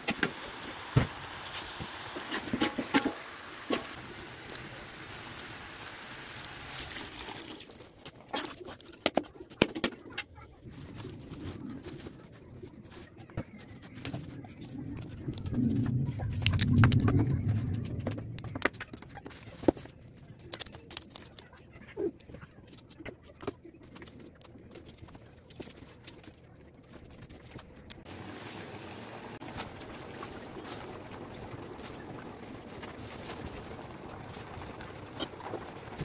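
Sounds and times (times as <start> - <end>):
low rumble: 14.2 - 19.0.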